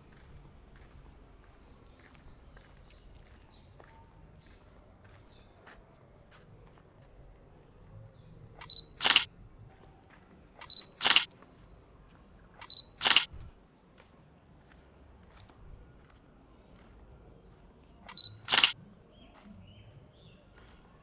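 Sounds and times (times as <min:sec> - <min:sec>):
camera shutter firing: 0:08.6 - 0:09.3, 0:10.6 - 0:11.3, 0:12.6 - 0:13.3, 0:18.1 - 0:18.8
short high beep: 0:08.6 - 0:09.3, 0:10.6 - 0:11.3, 0:12.6 - 0:13.3, 0:18.1 - 0:18.8.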